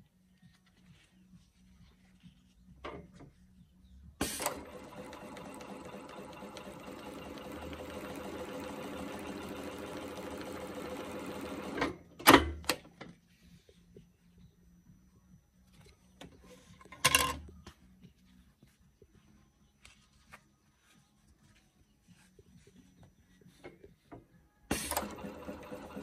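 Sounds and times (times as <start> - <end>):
sewing machine running: 4.2 - 12.0, 24.7 - 26.0.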